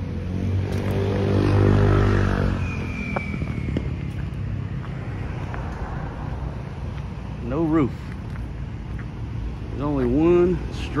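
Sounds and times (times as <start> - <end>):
vehicle engine passing by: 0.0 - 6.9.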